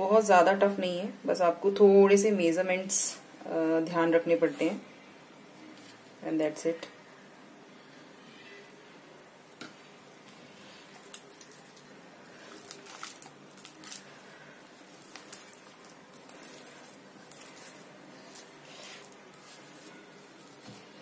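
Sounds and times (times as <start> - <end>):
dough squishing: 9.6 - 21.0.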